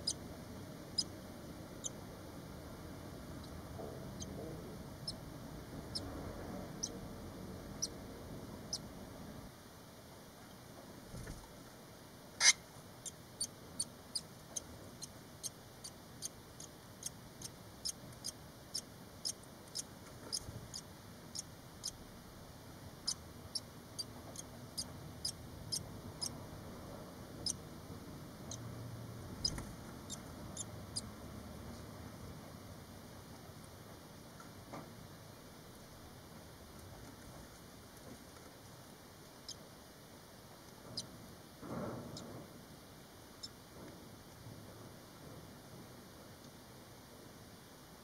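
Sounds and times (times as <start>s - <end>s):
nestlings peeping: 0.0s - 9.0s, 12.4s - 22.0s, 22.9s - 26.4s, 27.3s - 27.7s, 28.3s - 31.2s.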